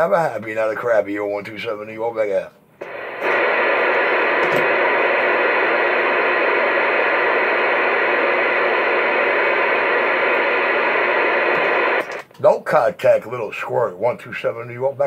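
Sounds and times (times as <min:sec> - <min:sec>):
radio static hiss: 0:02.8 - 0:12.3.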